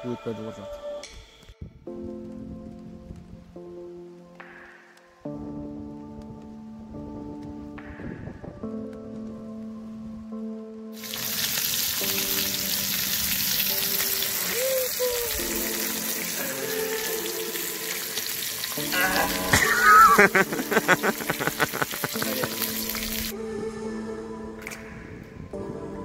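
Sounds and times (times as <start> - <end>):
background music: 0.0 - 26.0
food sizzling in a frying pan: 11.0 - 23.3.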